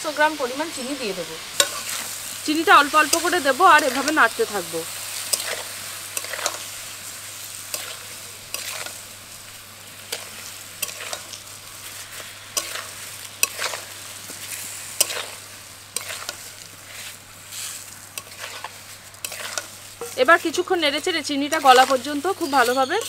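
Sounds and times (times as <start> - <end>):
fruit frying in oil: 0.0 - 23.0
spatula scraping and knocking pan: 1.6 - 2.2, 7.7 - 9.0, 10.1 - 11.4, 12.1 - 23.0.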